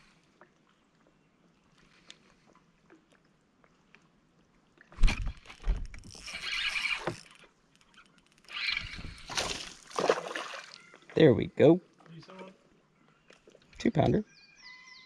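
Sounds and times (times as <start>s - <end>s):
fish splashing in water: 8.5s - 10.9s.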